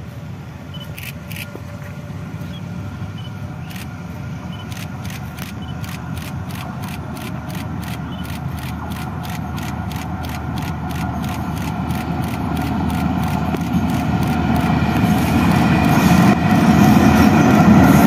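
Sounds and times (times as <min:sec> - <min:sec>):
locomotive engine rumble: 0:00.0 - 0:18.0
rapid sharp clicks: 0:04.6 - 0:15.1.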